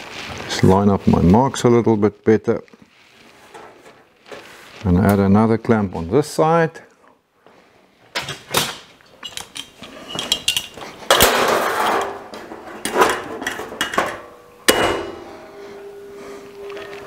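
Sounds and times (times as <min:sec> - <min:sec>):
metal clinks and scraping: 0:09.2 - 0:12.2
sheet steel clattering: 0:09.2 - 0:15.4.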